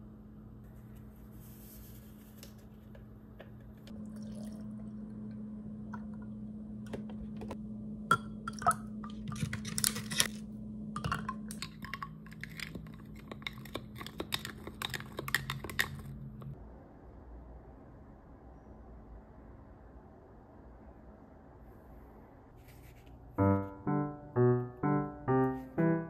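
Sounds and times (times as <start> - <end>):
steady low hum: 0.0 - 15.1
milk pouring: 3.9 - 5.2.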